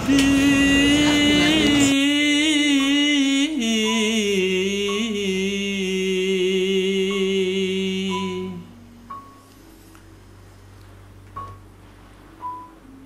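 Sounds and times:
person singing slow chant: 0.0s - 9.1s.

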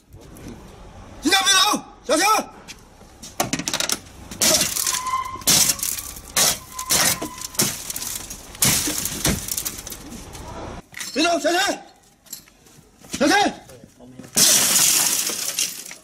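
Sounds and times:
car window glass smashing: 4.4s - 10.1s, 14.4s - 16.0s
broken glass crunching: 4.4s - 10.2s, 14.4s - 16.0s.

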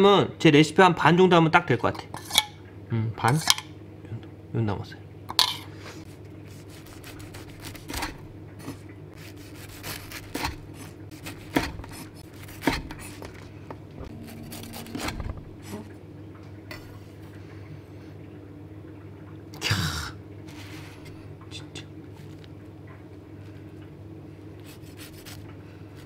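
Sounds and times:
low steady hum: 0.0s - 26.0s
knife cutting toasted bread: 6.5s - 8.2s, 9.2s - 13.4s, 14.2s - 15.2s, 24.7s - 25.4s.

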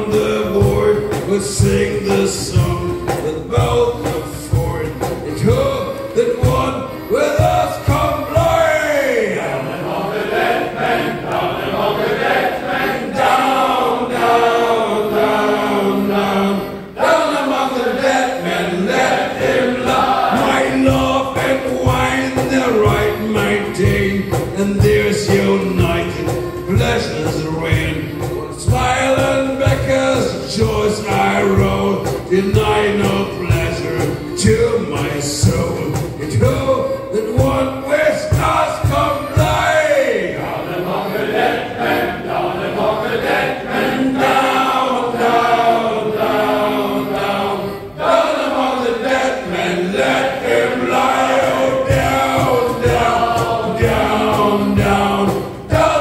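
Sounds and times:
accordion: 0.0s - 56.0s
male choir singing: 0.0s - 56.0s
steady beat: 0.0s - 56.0s.

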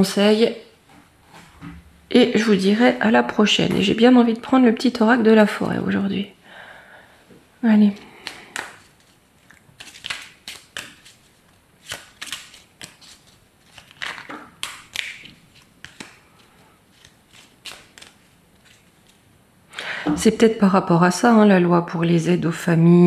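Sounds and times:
cards being shuffled: 8.0s - 19.2s.

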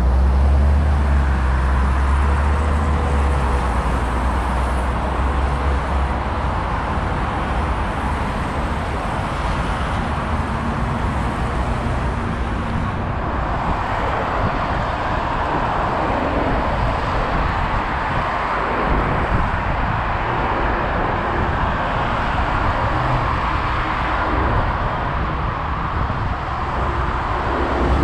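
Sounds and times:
cars passing: 0.0s - 28.0s
deep rumble: 17.6s - 28.0s.

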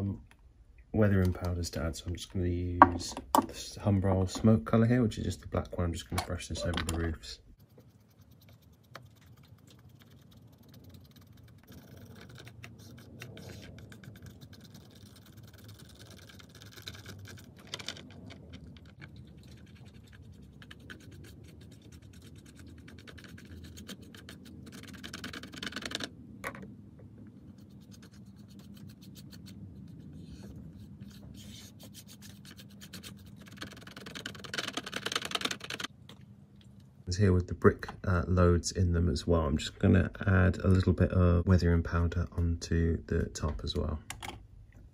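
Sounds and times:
paintbrush bristles scratching plastic: 6.6s - 26.1s, 27.3s - 35.9s.

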